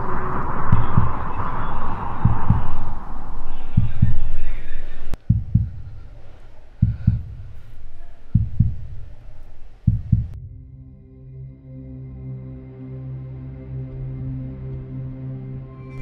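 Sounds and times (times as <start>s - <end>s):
rushing hiss: 0.0s - 5.2s
heartbeat double thumps: 0.0s - 10.4s.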